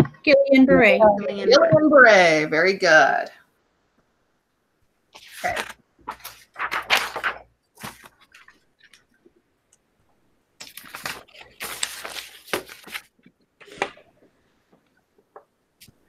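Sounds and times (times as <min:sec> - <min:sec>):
rustling and handling noises: 0:05.1 - 0:09.4, 0:10.6 - 0:16.0.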